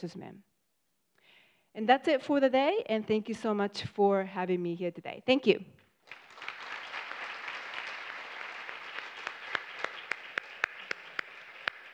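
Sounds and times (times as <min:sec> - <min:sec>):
audience applauding: 0:06.0 - 0:11.9.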